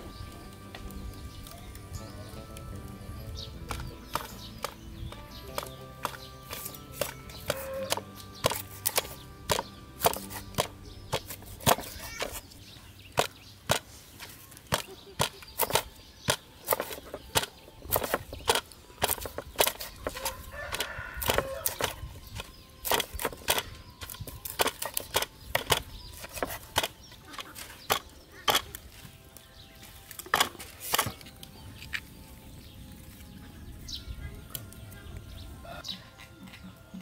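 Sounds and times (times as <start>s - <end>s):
cleaver chopping fish on wooden board: 3.7s - 12.4s, 13.1s - 13.9s, 14.7s - 27.0s.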